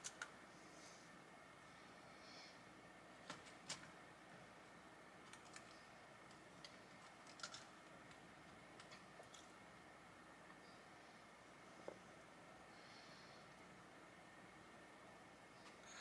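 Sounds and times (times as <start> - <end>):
small pieces clicking when set down: 5.2 - 9.6.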